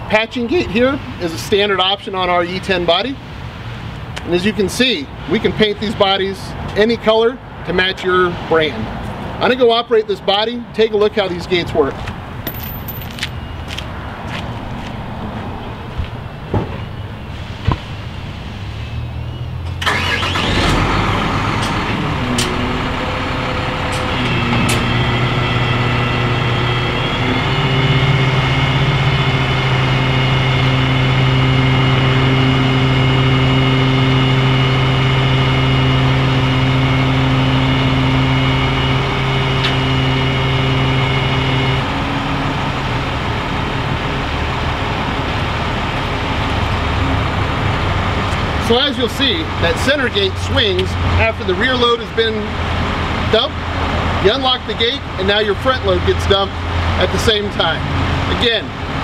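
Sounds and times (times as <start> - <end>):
dump truck engine running: 15.3 - 59.0
hydraulic hoist whine: 16.8 - 51.9.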